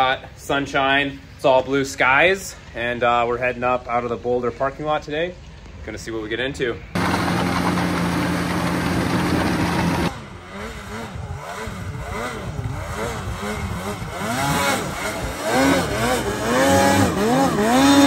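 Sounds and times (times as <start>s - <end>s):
snowmobile engine revving: 7.0s - 18.0s.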